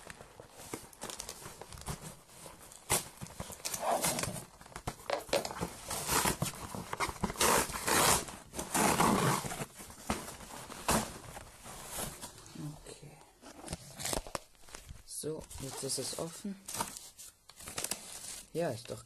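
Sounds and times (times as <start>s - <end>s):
cardboard scraping and tearing: 0.7s - 4.5s, 5.5s - 11.2s.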